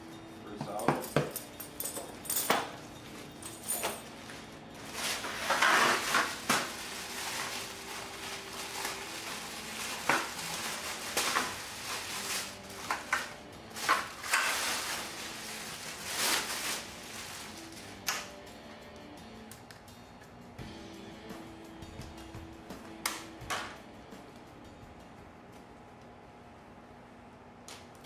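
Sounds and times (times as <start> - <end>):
handling clicks and knocks: 0.6 - 2.8
plastic packaging crinkling: 3.2 - 18.0.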